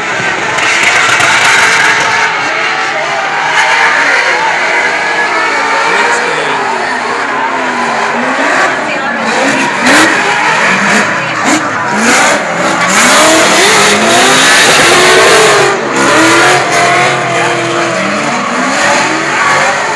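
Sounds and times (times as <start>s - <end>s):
car engines revving hard: 0.0s - 19.9s.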